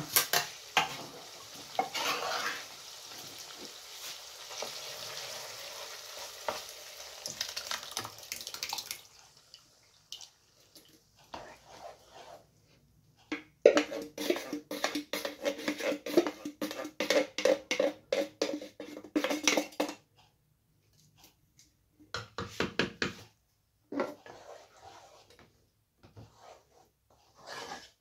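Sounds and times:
spoon stirring sauce: 1.7s - 2.8s, 10.7s - 12.4s, 13.3s - 20.0s, 24.0s - 25.4s
spoon scraping metal can: 1.8s - 2.8s, 13.6s - 20.0s, 27.3s - 28.0s.

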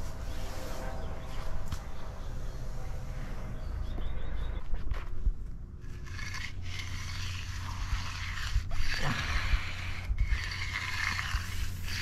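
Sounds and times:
concrete groover scraping: 5.8s - 12.0s.

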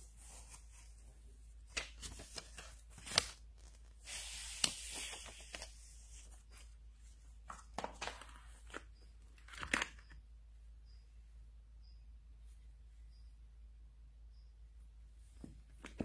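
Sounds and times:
paper rustling and crinkling: 0.1s - 10.0s.

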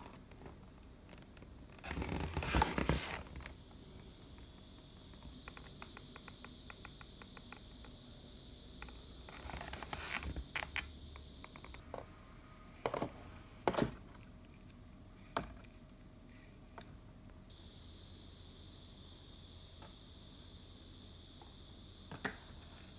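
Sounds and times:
steady hiss: 0.0s - 12.7s, 17.4s - 22.9s.

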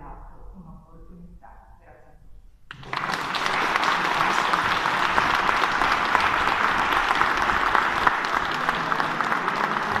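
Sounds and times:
crowd applauding: 2.7s - 10.0s.

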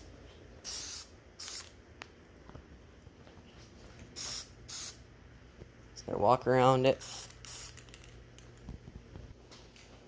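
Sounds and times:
spray paint can hissing: 0.6s - 1.8s, 4.2s - 5.0s, 7.0s - 8.0s.

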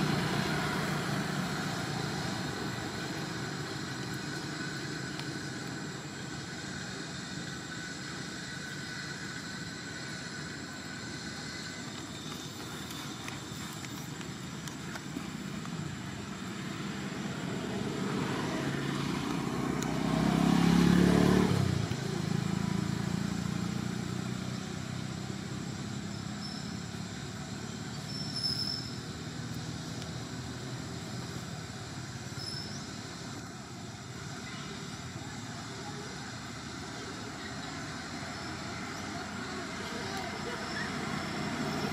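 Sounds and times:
vehicle passing by: 0.0s - 5.9s, 16.2s - 27.9s
low hum of traffic: 0.0s - 41.9s.

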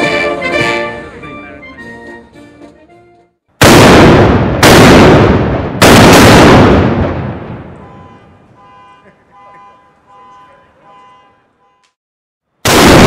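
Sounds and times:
cannon shots: 3.6s - 7.8s, 12.6s - 13.0s
rumbling echo: 3.6s - 7.8s.

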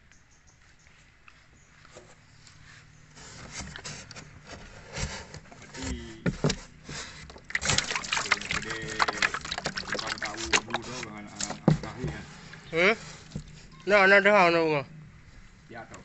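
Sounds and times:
fish flapping in shallow water: 6.4s - 13.6s
wet slaps and splashes: 7.3s - 11.6s.

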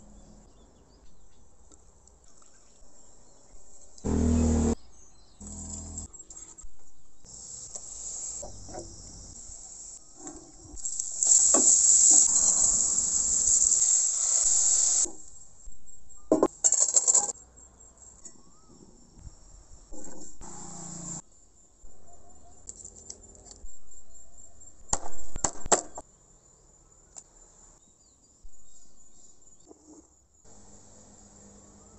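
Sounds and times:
rice pouring into pot hiss: 10.8s - 15.1s.

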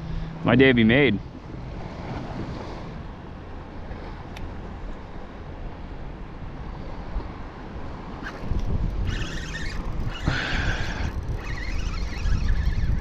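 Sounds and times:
waves lapping: 0.0s - 12.7s
wind buffeting microphone: 6.4s - 13.0s.

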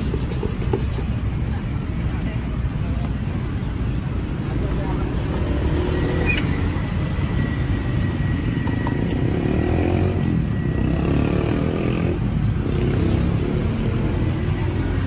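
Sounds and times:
motorcycle engines running: 4.6s - 15.0s.

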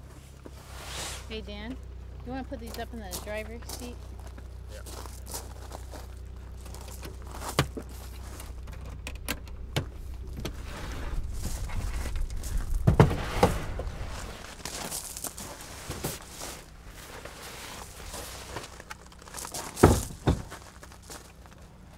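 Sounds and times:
steady low hum: 0.0s - 21.9s
knocks and clunks: 6.8s - 14.0s, 19.7s - 20.8s.

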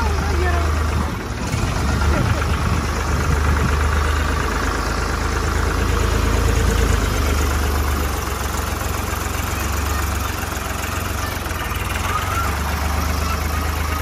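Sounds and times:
tractor engine rumbling: 0.0s - 14.0s.

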